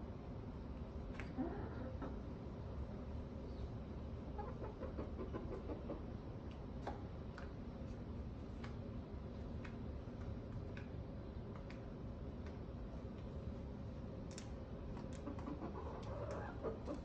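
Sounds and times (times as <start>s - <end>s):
steady low hum: 0.0s - 17.0s
hens clucking: 4.4s - 6.1s, 15.2s - 17.0s.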